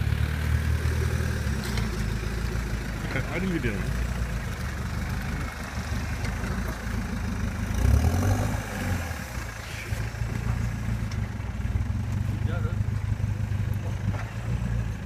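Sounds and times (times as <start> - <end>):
pickup truck engine running: 0.0 - 15.0.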